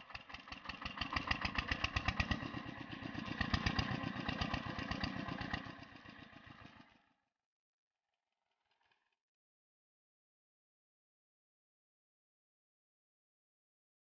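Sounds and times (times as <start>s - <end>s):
diesel engine chugging: 0.0s - 6.9s.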